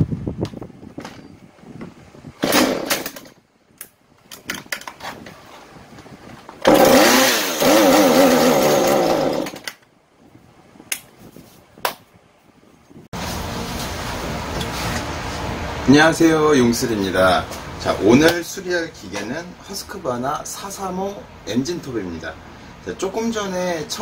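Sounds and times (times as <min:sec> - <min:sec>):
starter cord rattle: 0:02.4 - 0:03.4, 0:06.6 - 0:09.9
chainsaw engine surging: 0:06.6 - 0:09.7.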